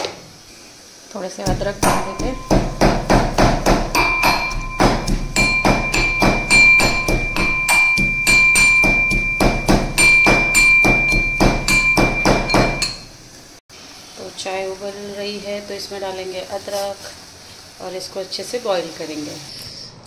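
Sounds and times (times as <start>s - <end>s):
pestle pounding in metal mortar: 1.5s - 13.1s
mortar ringing: 1.5s - 13.2s.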